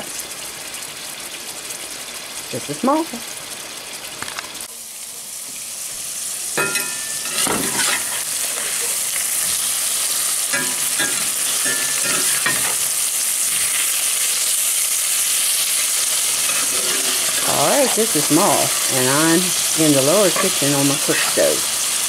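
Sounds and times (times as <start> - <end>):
meat sizzling in a skillet: 0.0 - 22.0
metal spatula scraping a pan: 6.6 - 9.7, 10.4 - 14.0, 16.1 - 19.2, 19.9 - 21.5.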